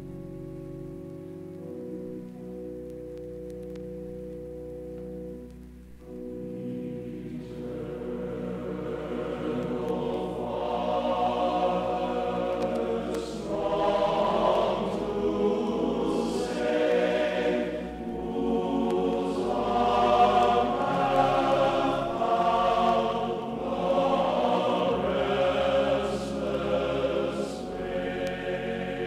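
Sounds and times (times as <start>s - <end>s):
choir singing held chords: 6.0s - 29.0s.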